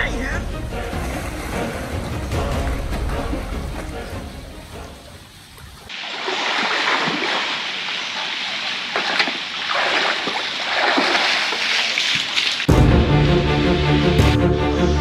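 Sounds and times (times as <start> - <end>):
pool water splashing: 0.8 - 13.1.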